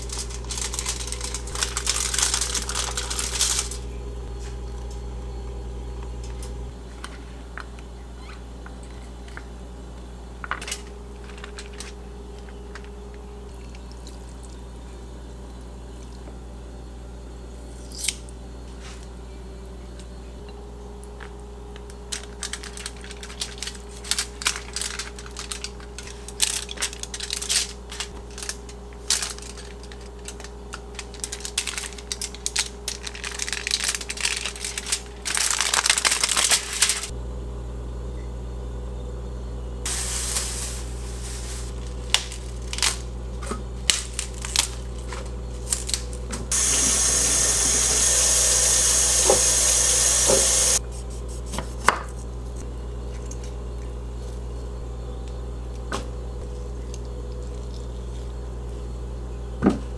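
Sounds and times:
foil and paper crinkling: 0:00.0 - 0:03.9, 0:11.2 - 0:12.6, 0:21.9 - 0:37.1, 0:39.9 - 0:43.1, 0:43.8 - 0:48.5
steady hiss: 0:39.9 - 0:41.8, 0:46.5 - 0:50.8.

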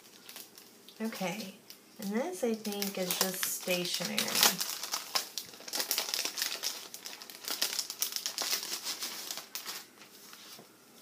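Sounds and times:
plastic packet crinkling: 0:00.0 - 0:10.6
paper rustling: 0:02.7 - 0:11.0.

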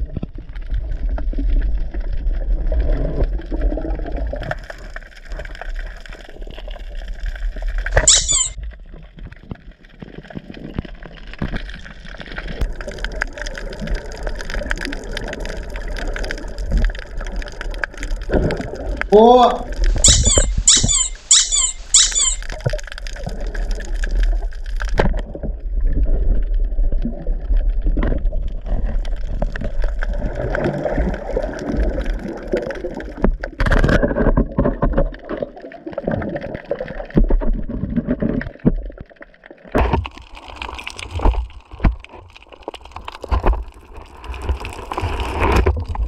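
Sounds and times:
underwater low rumble: 0:00.0 - 0:07.9, 0:22.8 - 0:39.6.

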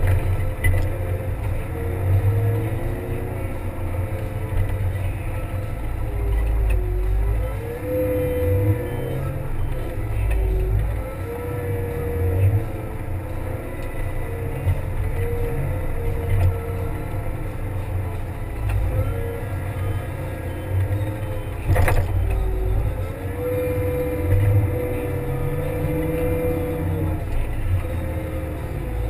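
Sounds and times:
diesel engine running under load: 0:00.0 - 0:29.0.

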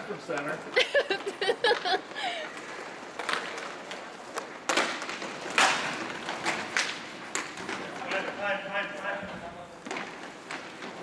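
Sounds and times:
hockey sticks knocking puck: 0:02.6 - 0:09.1, 0:09.8 - 0:11.0.

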